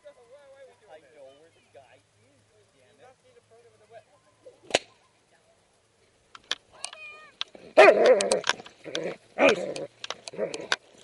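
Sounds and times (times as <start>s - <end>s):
dog yelping barks: 7.8s - 8.5s.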